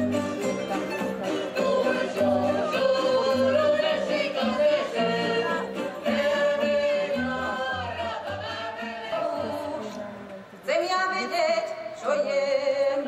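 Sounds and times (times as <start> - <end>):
string band playing: 0.0 - 10.4
voices singing together: 1.2 - 10.2.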